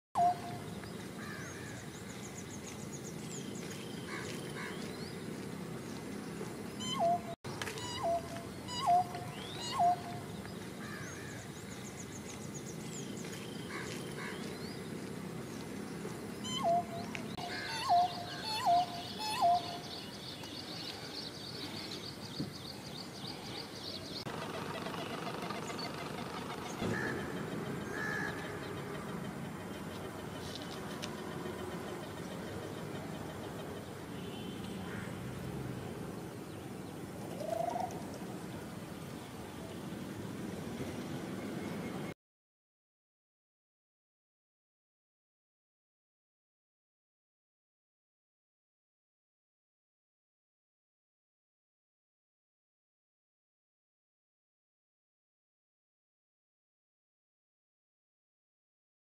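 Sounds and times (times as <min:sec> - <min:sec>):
bird calls: 0:00.2 - 0:05.2, 0:05.9 - 0:14.8, 0:16.4 - 0:35.2.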